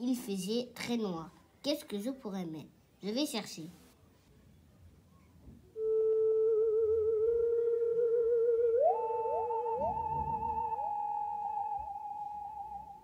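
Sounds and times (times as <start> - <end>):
eerie wavering electronic tone: 5.8 - 13.0.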